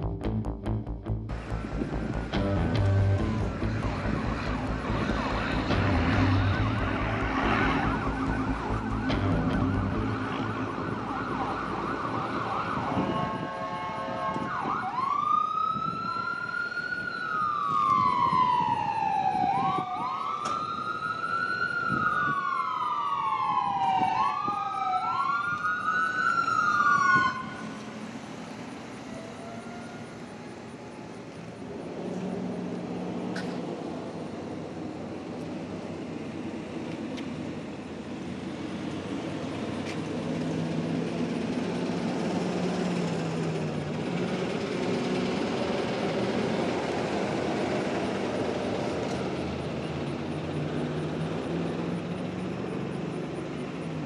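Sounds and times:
vehicle engine rumbling: 0.0s - 13.7s, 27.0s - 54.0s
ambulance siren wailing: 1.3s - 31.8s.

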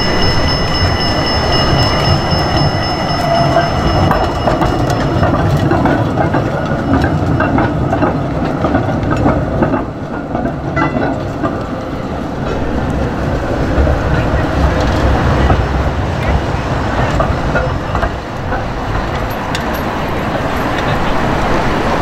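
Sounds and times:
low rumble of tram car: 0.0s - 22.0s
tram wheels clacking over rail joints: 0.0s - 22.0s
tram wheels squealing: 0.0s - 22.0s.

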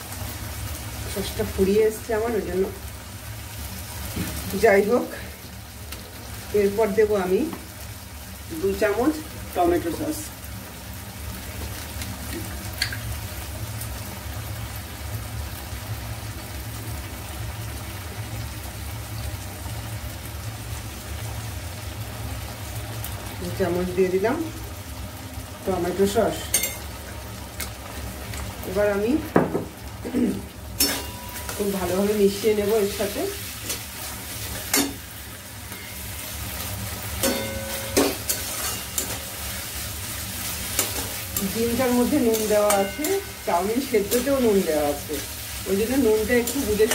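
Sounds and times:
gas burner rumble: 0.0s - 46.9s
vegetables sizzling in a wok: 0.0s - 46.9s
spatula clinking on metal: 26.5s - 26.9s, 30.8s - 31.7s, 34.5s - 35.0s, 35.7s - 36.1s, 37.1s - 39.3s, 40.7s - 44.5s
spoon tapping a wok: 37.2s - 39.2s, 42.3s - 43.3s
spatula scraping the pan: 37.2s - 39.8s.

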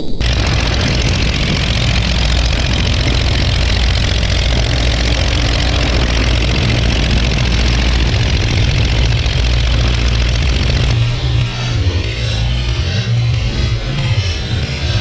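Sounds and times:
aircraft engine running: 0.0s - 15.0s.

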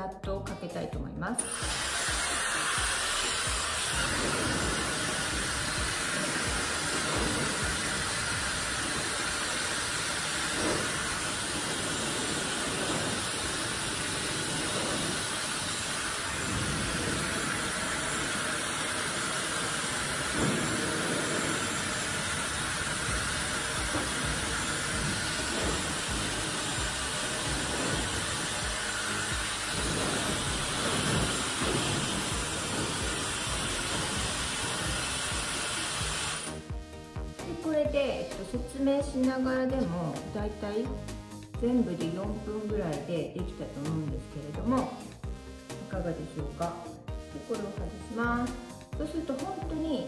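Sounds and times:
hair dryer running: 1.4s - 37.9s.

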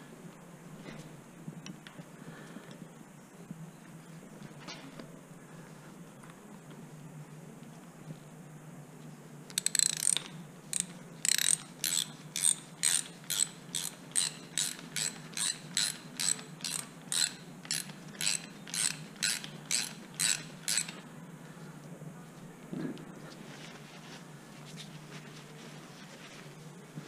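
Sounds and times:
socket ratchet clicking: 9.5s - 21.0s.

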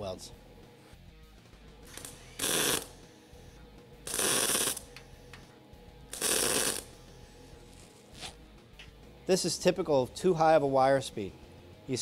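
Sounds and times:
spot welding arc on sheet steel: 1.8s - 3.5s, 4.1s - 5.4s, 6.1s - 8.3s.

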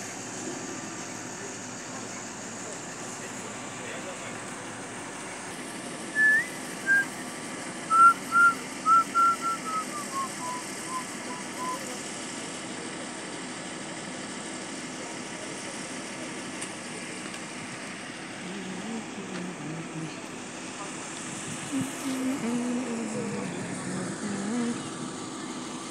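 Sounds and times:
bird whistling descending notes: 6.2s - 7.2s, 7.9s - 12.0s.

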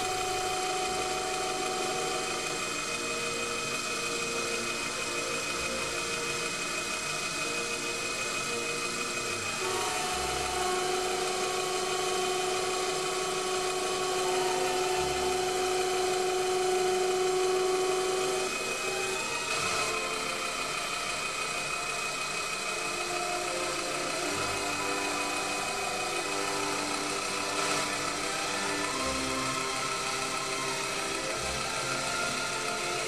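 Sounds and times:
mini lathe whining: 0.0s - 33.0s.

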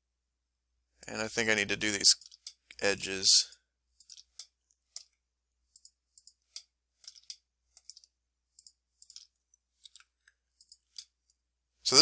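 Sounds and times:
computer mouse clicks: 4.0s - 11.2s.

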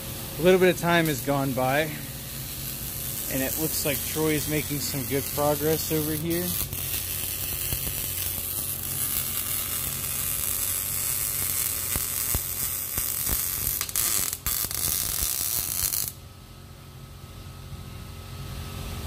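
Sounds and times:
welder arc sizzling: 0.0s - 16.2s
steady low hum: 0.0s - 19.0s.

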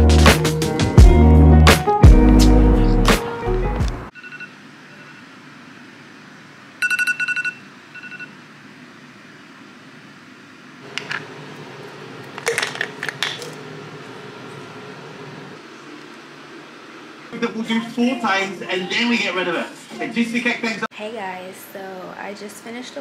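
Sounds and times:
background music: 0.0s - 4.1s.

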